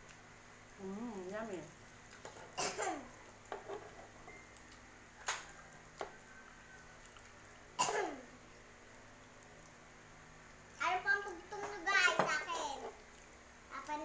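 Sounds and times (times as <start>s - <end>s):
faint sizzle: 0.0s - 14.0s.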